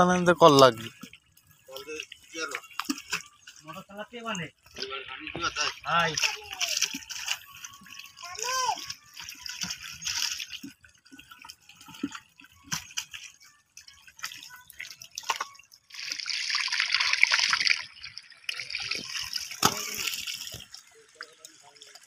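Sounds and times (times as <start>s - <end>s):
muddy water sloshing: 0.0s - 22.0s.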